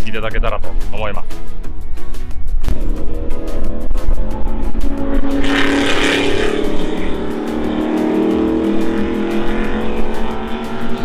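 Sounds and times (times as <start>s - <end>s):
background music with beat: 0.0s - 11.0s
race car engine accelerating: 2.7s - 11.0s.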